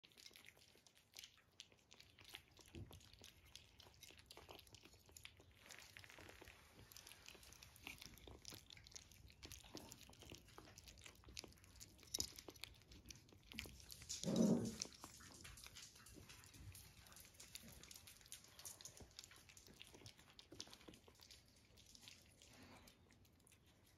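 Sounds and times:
puppies chewing and lapping: 0.0s - 23.9s
teeth clicking on plate: 7.1s - 23.9s.

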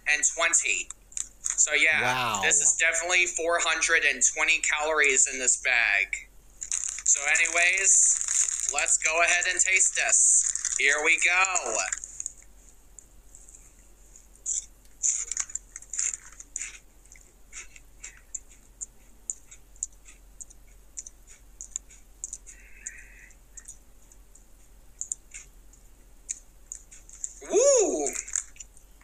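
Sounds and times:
crunching chewing of chips: 6.6s - 9.7s, 10.4s - 12.5s, 14.4s - 25.6s, 28.0s - 28.8s.

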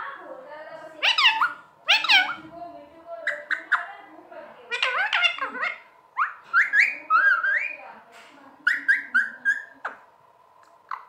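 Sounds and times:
parakeet whistles and chirps: 1.0s - 2.4s, 4.7s - 7.8s, 8.7s - 10.0s.

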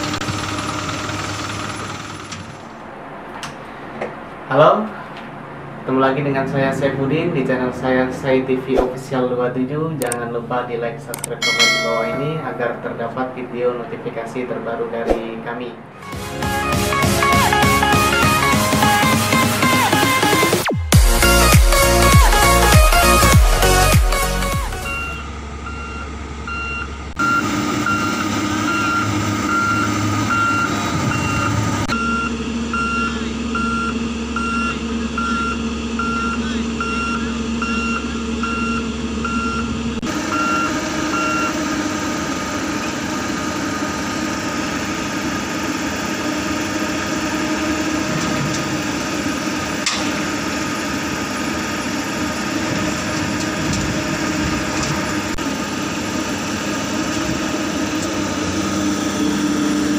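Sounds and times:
diesel engine running: 0.0s - 59.9s
reversing alarm beeping: 24.6s - 41.9s.

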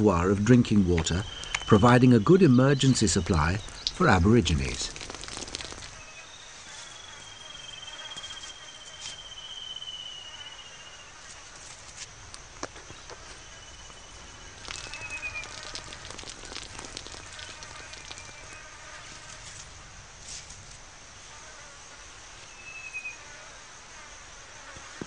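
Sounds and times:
soft clicks and crackles: 4.6s - 6.0s, 14.2s - 18.6s.

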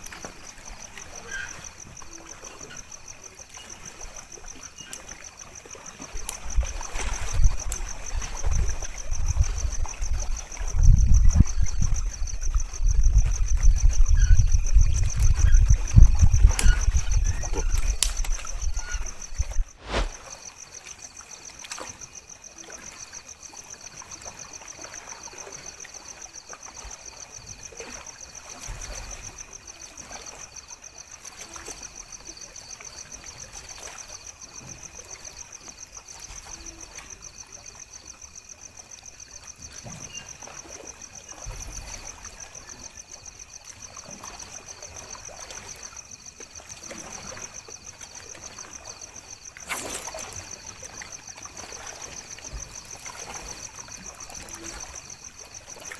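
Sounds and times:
night insects chorus: 0.0s - 55.9s
small waves lapping at shore: 0.0s - 55.9s.

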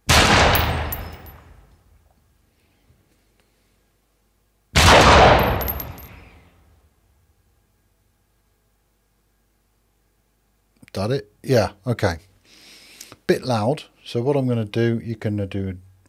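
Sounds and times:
gunshot: 0.0s - 1.6s, 4.8s - 6.2s.

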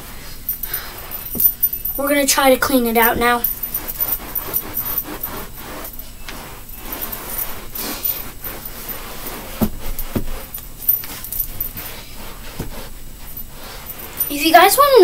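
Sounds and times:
scrubbing a carpet: 2.8s - 15.0s.

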